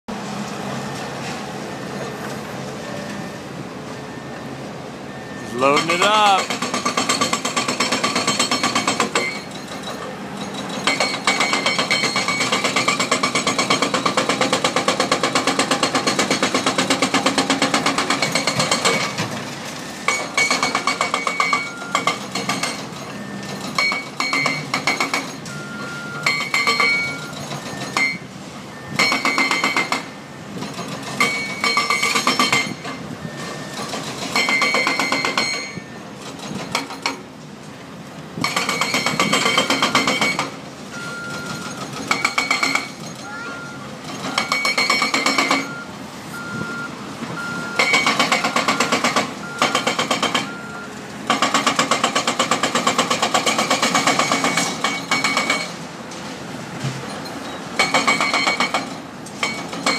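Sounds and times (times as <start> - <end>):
hydraulic breaker hammering concrete: 5.6 - 9.8, 10.5 - 19.4, 20.1 - 25.4, 26.2 - 28.2, 29.0 - 32.9, 33.7 - 37.2, 38.4 - 40.6, 41.6 - 43.4, 44.0 - 45.8, 47.8 - 50.6, 51.3 - 55.8, 57.8 - 59.9.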